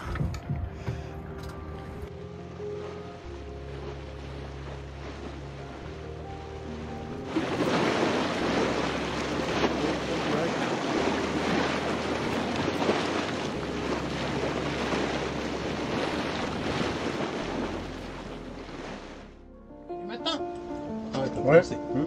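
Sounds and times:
wind buffeting microphone: 0:00.0 - 0:01.1
waves washing: 0:00.0 - 0:22.0.

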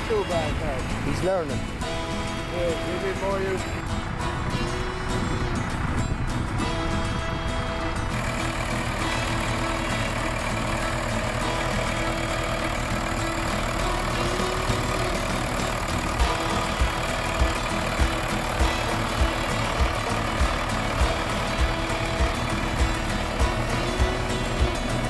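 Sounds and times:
engine running: 0:00.0 - 0:25.0
regular low thumps: 0:16.2 - 0:25.0.

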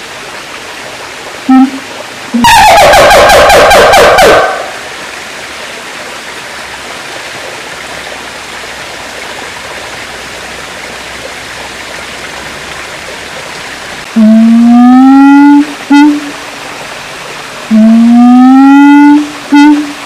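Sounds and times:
siamang call rising in pitch: 0:01.5 - 0:04.8, 0:14.2 - 0:16.4, 0:17.7 - 0:20.0.

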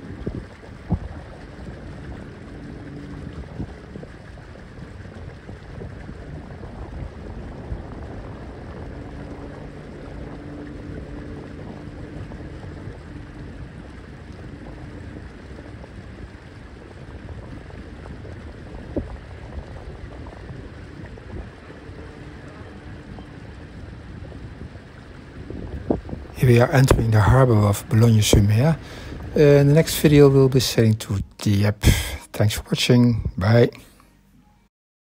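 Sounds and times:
wind noise: 0:00.0 - 0:33.7
water wash: 0:00.0 - 0:33.8
faint low hum: 0:00.0 - 0:34.7.

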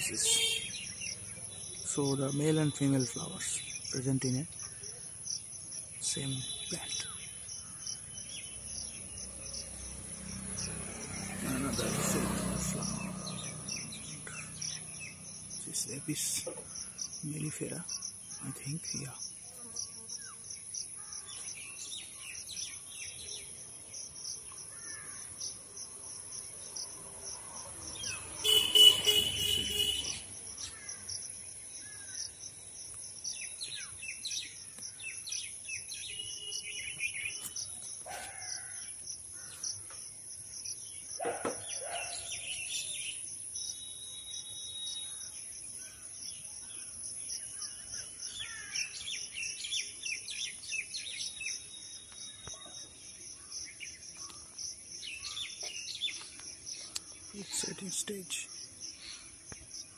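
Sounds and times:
high pulsing insect drone: 0:00.0 - 0:38.0
birds chirping: 0:00.0 - 0:59.9.

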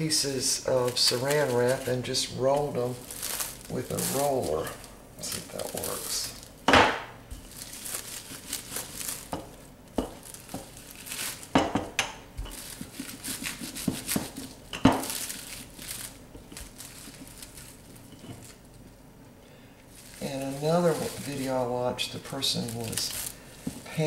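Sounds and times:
plastic wrap crinkling: 0:00.0 - 0:06.6, 0:07.3 - 0:11.8, 0:12.4 - 0:19.1, 0:19.8 - 0:24.0.

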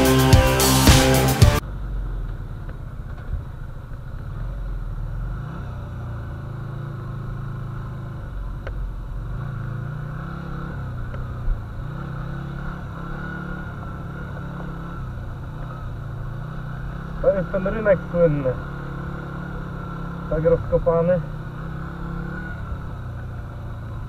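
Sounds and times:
motorcycle engine running slowly: 0:00.0 - 0:24.0.

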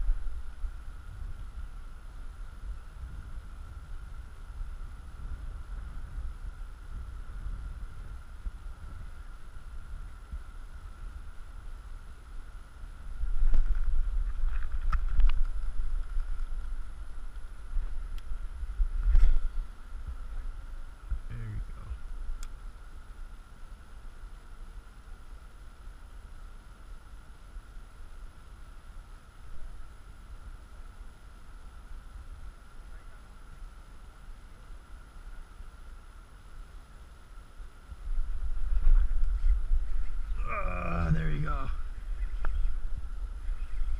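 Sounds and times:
wind on microphone: 0:00.0 - 0:12.2, 0:12.9 - 0:22.5, 0:37.9 - 0:43.9.

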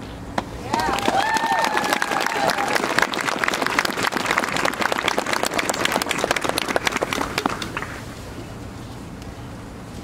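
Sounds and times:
crowd applauding: 0:00.6 - 0:08.0.

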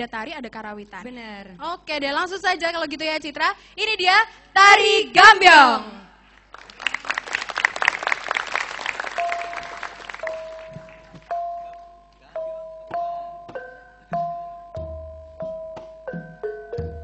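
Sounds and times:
audience applause: 0:06.5 - 0:11.3.

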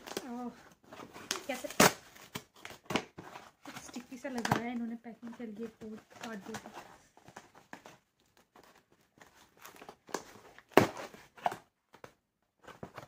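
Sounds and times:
cardboard ripping: 0:00.0 - 0:04.7, 0:08.6 - 0:11.7
cardboard and tape rustling: 0:00.0 - 0:13.0.

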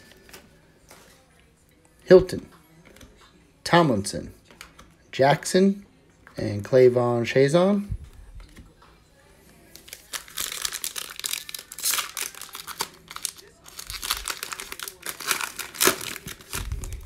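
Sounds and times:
foil wrapper tearing and crinkling: 0:09.8 - 0:17.0.

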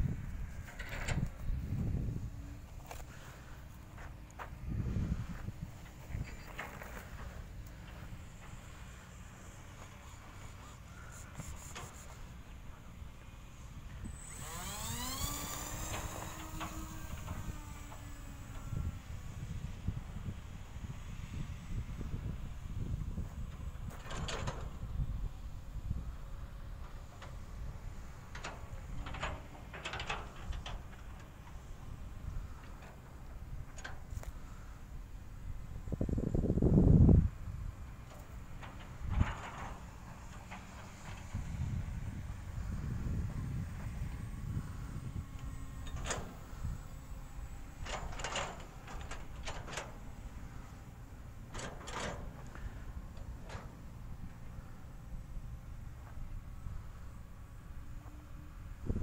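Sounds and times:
wind rumbling on microphone: 0:00.0 - 0:50.9, 0:57.8 - 0:59.0
scraping rustling noises: 0:00.5 - 0:12.9.

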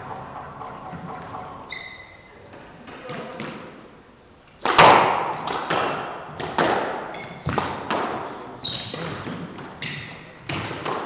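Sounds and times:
sneaker squeaks on wooden floor: 0:01.6 - 0:02.4, 0:08.6 - 0:10.3
squash ball smacks: 0:04.6 - 0:11.0.

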